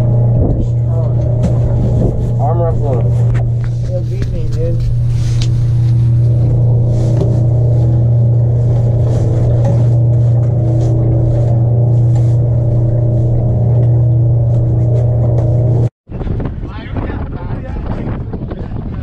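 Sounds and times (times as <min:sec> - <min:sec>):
boat motor idling: 0:00.0 - 0:15.9.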